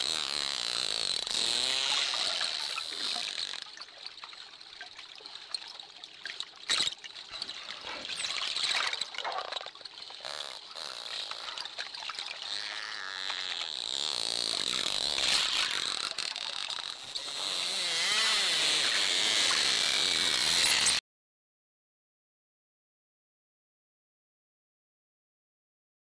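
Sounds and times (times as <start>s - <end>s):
dolphin clicking and buzzing: 0.0s - 3.8s, 9.0s - 21.0s
underwater water noise: 0.0s - 21.0s.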